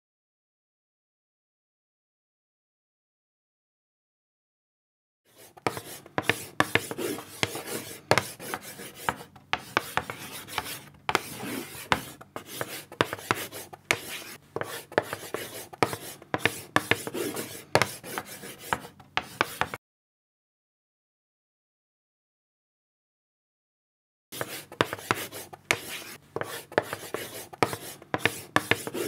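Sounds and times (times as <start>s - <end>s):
chalk scratching on blackboard: 5.3s - 19.8s, 24.4s - 29.0s.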